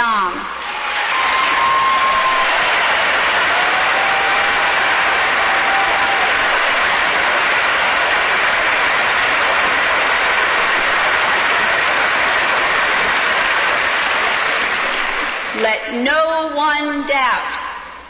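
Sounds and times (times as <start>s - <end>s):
crowd applauding: 0.5s - 15.8s.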